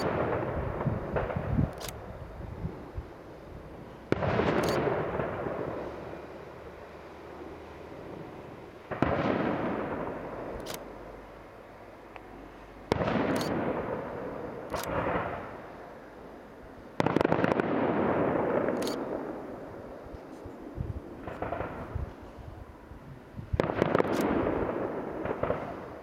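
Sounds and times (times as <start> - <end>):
rolling echo: 0.0 - 1.6, 7.3 - 10.9, 12.9 - 15.8, 17.0 - 22.6, 23.6 - 26.0
firework crackling: 0.0 - 6.8, 16.9 - 22.5, 23.5 - 26.0.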